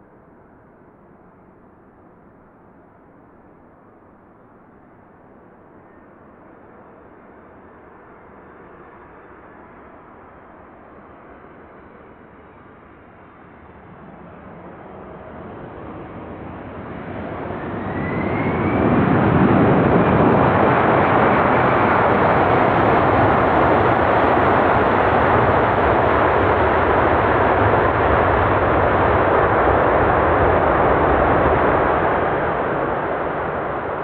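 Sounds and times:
jet engines roaring: 14.2s - 34.0s
rising engine whine: 15.6s - 34.0s.

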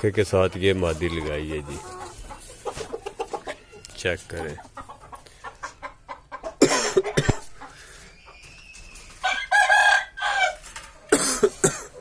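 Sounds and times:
rooster crowing: 9.2s - 10.6s.

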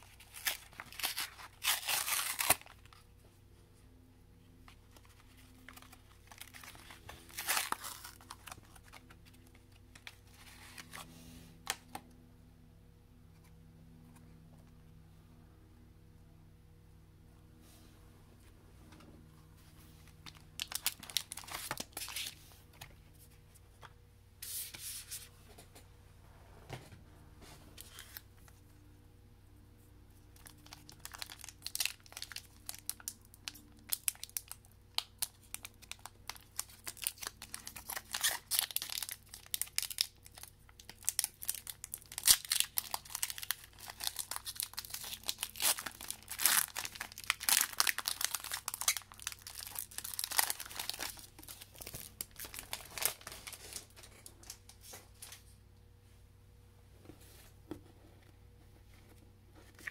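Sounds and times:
foil wrapper tearing and crinkling: 0.0s - 3.0s, 5.7s - 9.1s, 20.3s - 22.4s, 30.4s - 33.2s, 33.8s - 53.9s.

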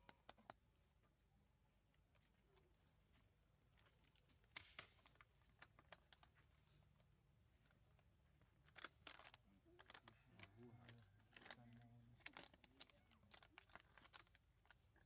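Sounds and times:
plastic cup crinkling and crackling: 2.1s - 6.6s, 7.6s - 15.0s.

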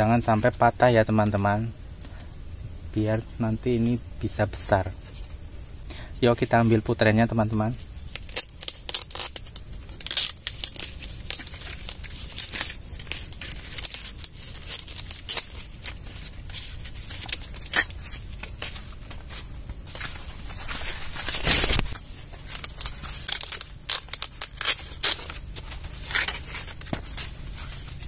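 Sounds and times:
corn husks rustling and tearing: 7.3s - 28.0s.

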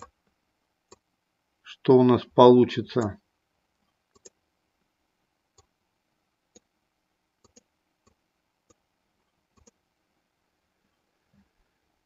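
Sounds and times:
mouse and keyboard clicks: 4.1s - 4.4s, 7.4s - 8.8s, 9.5s - 9.8s.

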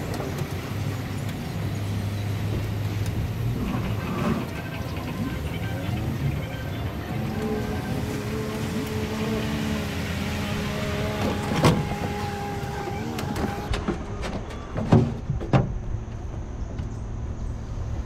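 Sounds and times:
outboard motor idling: 0.0s - 13.7s.

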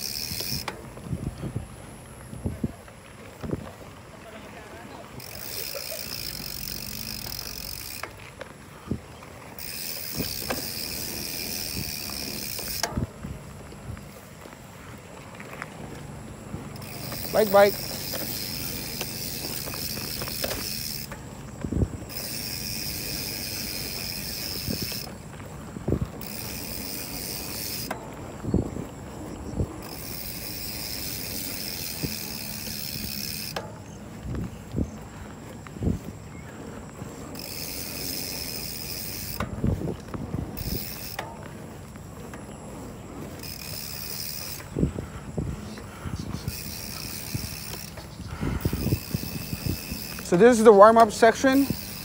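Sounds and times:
freewheel hub ticking: 0.0s - 2.4s, 5.2s - 8.9s, 9.6s - 13.9s, 16.0s - 28.1s, 29.8s - 34.9s, 37.3s - 41.5s, 43.3s - 52.0s
bike chain and frame rattling: 0.0s - 52.0s
tyre and wind rumble: 0.0s - 52.0s
bike thumping over bumps: 16.7s - 25.2s.

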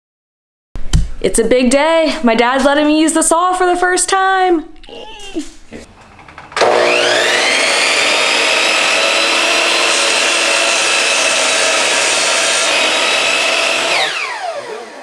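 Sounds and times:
miter saw motor whine: 6.6s - 15.0s
saw blade cutting wood: 6.6s - 15.0s.

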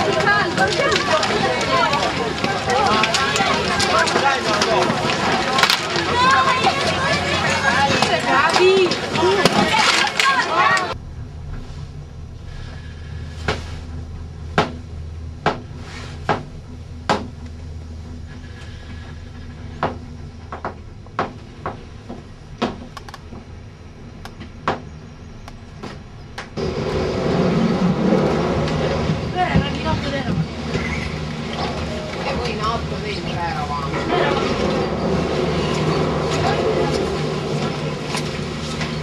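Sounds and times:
gondola lift machinery din: 0.0s - 39.0s
vehicle interior drone: 10.3s - 39.0s
knocks and rattles: 12.7s - 23.6s.

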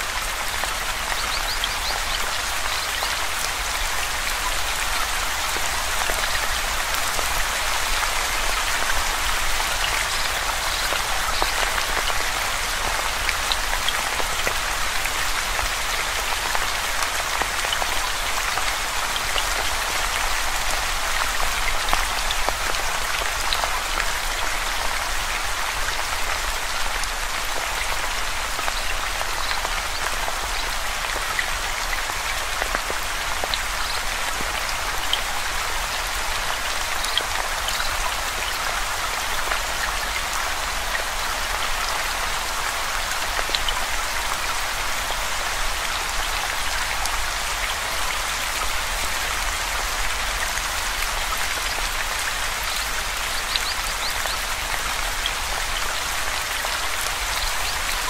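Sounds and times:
steady rain hiss: 0.0s - 58.0s.

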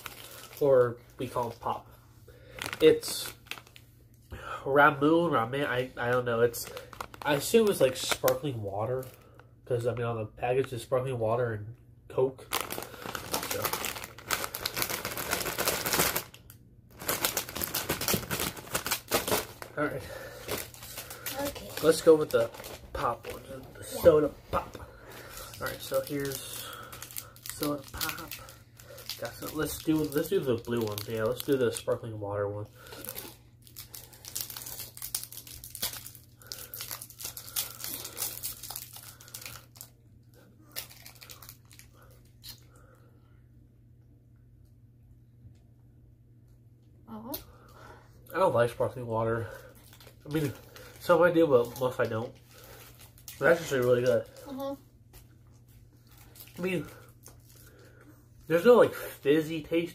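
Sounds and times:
plastic bag crinkling: 0.0s - 1.8s, 2.4s - 3.9s, 5.6s - 9.4s, 12.4s - 42.6s, 49.4s - 54.8s, 55.7s - 59.9s.

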